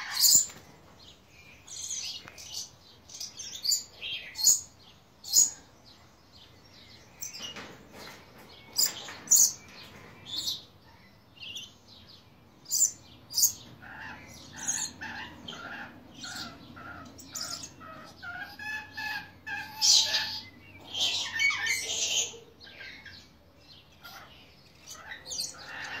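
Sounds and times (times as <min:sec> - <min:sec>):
parrot screeching and chattering: 0:00.0 - 0:00.5, 0:13.4 - 0:23.1, 0:24.0 - 0:26.0.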